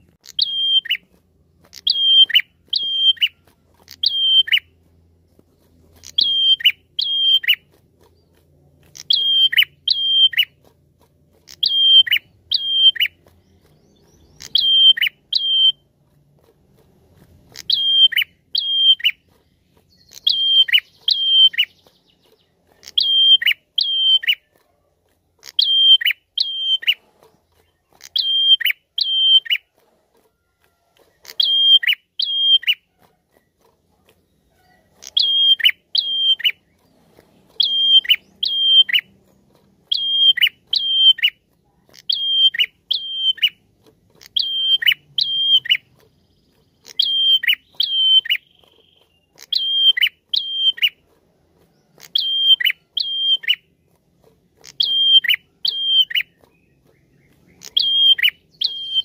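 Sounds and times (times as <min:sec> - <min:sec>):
bird whistling sharp notes: 0:00.2 - 0:01.0, 0:01.8 - 0:04.7, 0:06.0 - 0:07.6, 0:09.0 - 0:10.6, 0:11.5 - 0:13.2, 0:13.8 - 0:15.8, 0:17.6 - 0:19.2, 0:19.9 - 0:21.9, 0:22.8 - 0:24.4, 0:25.5 - 0:27.0, 0:28.1 - 0:29.6, 0:31.3 - 0:32.8, 0:35.0 - 0:36.8, 0:37.6 - 0:39.1, 0:39.9 - 0:41.4, 0:42.1 - 0:43.6, 0:44.3 - 0:45.9, 0:46.9 - 0:51.0, 0:52.0 - 0:53.6, 0:54.7 - 0:59.0.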